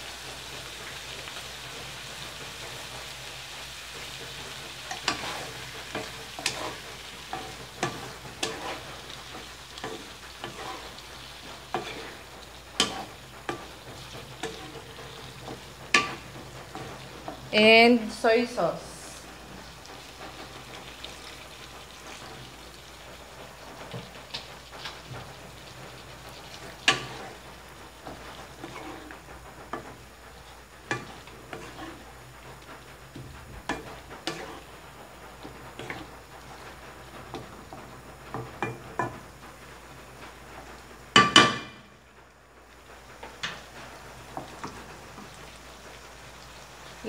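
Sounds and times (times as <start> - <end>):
food sizzling in a wok: 0.0 - 47.0.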